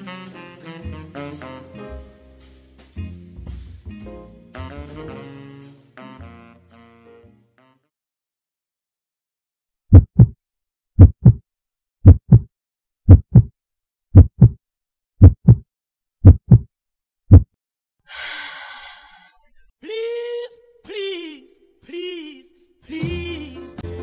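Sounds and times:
heartbeat thumps: 0:09.9 - 0:10.4, 0:11.0 - 0:11.4, 0:12.0 - 0:12.5, 0:13.1 - 0:13.5, 0:14.1 - 0:14.6, 0:15.2 - 0:15.6, 0:16.2 - 0:16.7, 0:17.3 - 0:17.5.

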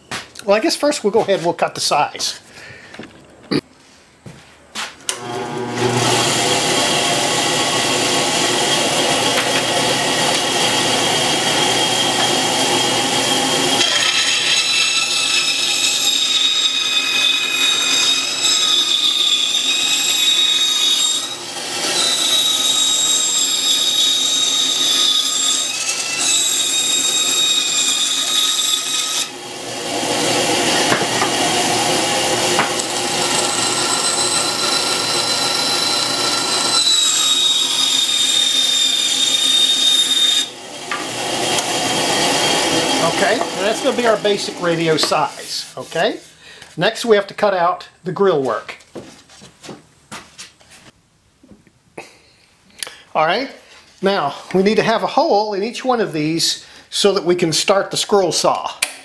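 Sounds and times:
power saw cutting wood: 0:05.1 - 0:46.2.

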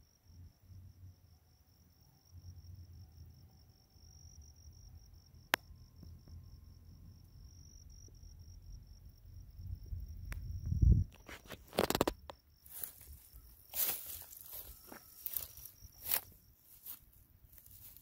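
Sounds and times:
high-pitched insect trill: 0:00.0 - 0:18.0.

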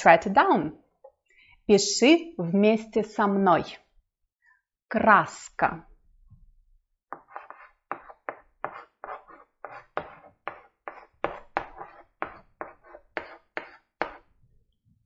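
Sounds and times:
chalk scratching on blackboard: 0:07.1 - 0:14.3.

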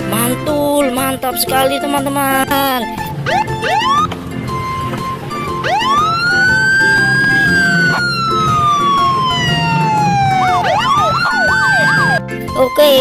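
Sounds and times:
siren wailing: 0:03.0 - 0:12.3
fast yelping siren warble: 0:03.1 - 0:12.2.

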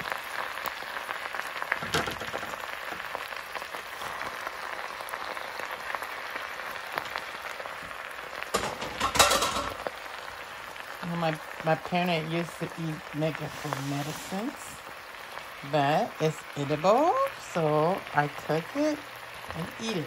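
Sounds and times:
leafy greens rustling in a bowl: 0:13.0 - 0:14.8.

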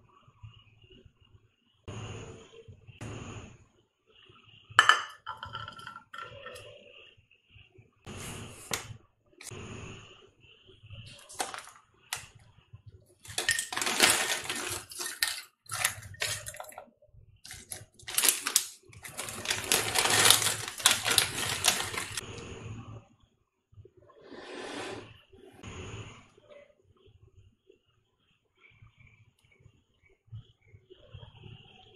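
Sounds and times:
plastic packet crinkling: 0:11.1 - 0:11.7, 0:13.2 - 0:16.8, 0:17.5 - 0:22.2
chips clattering onto plate: 0:11.1 - 0:11.8, 0:13.3 - 0:16.8, 0:17.5 - 0:22.2.

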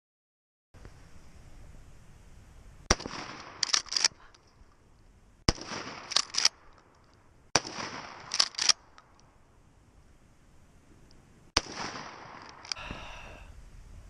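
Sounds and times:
shotgun shots: 0:02.9 - 0:04.1, 0:05.5 - 0:06.7, 0:07.5 - 0:08.8, 0:11.6 - 0:12.7
shotgun slide racking: 0:03.6 - 0:04.2, 0:06.1 - 0:06.6, 0:08.2 - 0:08.8.

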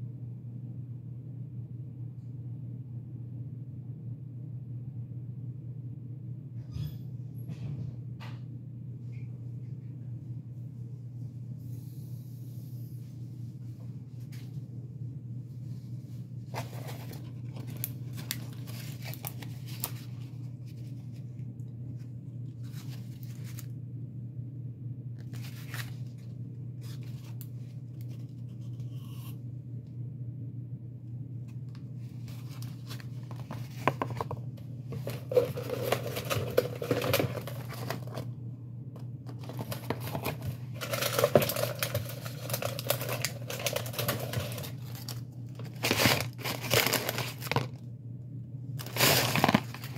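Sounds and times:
low steady hum: 0:00.0 - 0:49.9
paper wrappers rustling and tearing: 0:16.5 - 0:21.3, 0:22.5 - 0:23.7, 0:25.2 - 0:29.0, 0:32.2 - 0:38.3, 0:39.3 - 0:47.8, 0:48.8 - 0:49.9.

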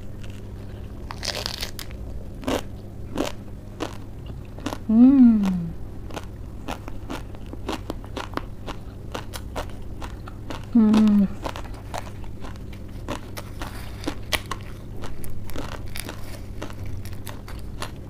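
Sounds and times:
lettuce crunching while chewed: 0:00.0 - 0:18.0
person humming: 0:04.9 - 0:05.8, 0:10.7 - 0:11.4.

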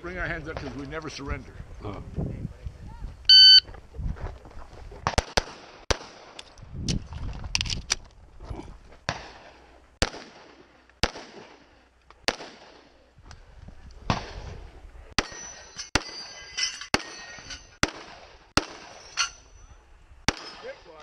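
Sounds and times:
pistol shots: 0:05.0 - 0:06.4, 0:10.0 - 0:11.6, 0:12.3 - 0:12.9, 0:17.8 - 0:19.0, 0:20.3 - 0:20.8
steel targets ringing: 0:15.2 - 0:17.8.

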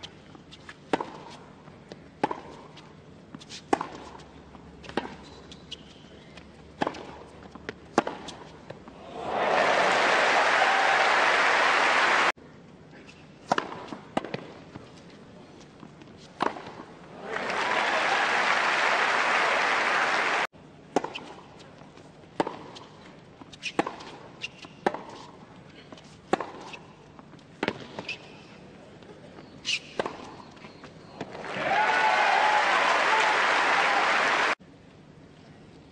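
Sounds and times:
tennis ball struck by rackets: 0:06.8 - 0:08.5, 0:13.4 - 0:14.5, 0:26.3 - 0:26.8
crowd applause: 0:09.0 - 0:12.3, 0:17.2 - 0:20.5, 0:31.4 - 0:34.6.

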